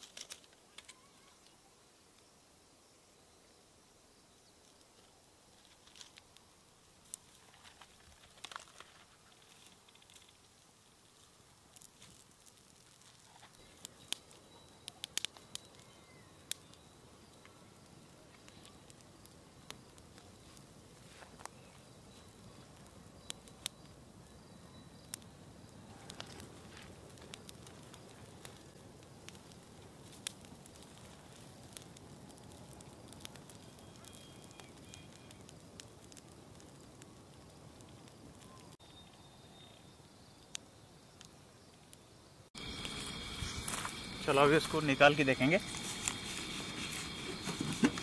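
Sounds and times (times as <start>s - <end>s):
brushwood fire crackling: 0.0s - 3.0s, 3.7s - 48.0s
low rush of flame: 42.6s - 48.0s.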